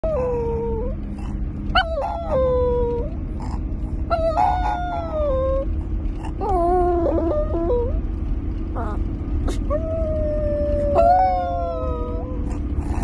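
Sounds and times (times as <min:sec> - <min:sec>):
car interior rumble: 0:00.0 - 0:13.0
dog howling: 0:01.7 - 0:03.2, 0:04.1 - 0:05.7, 0:06.4 - 0:08.0, 0:08.7 - 0:13.0.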